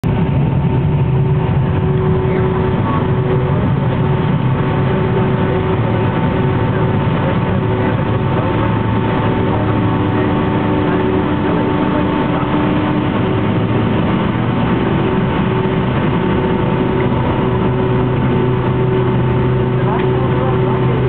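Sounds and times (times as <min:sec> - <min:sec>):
jet engines rumbling in cabin: 0:00.0 - 0:21.0.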